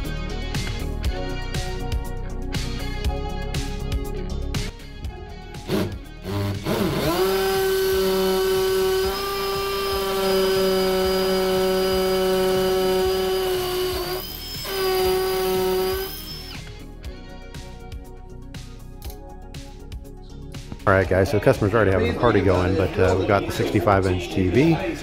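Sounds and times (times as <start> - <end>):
cordless drill boring into brick: 5.7 - 16.8.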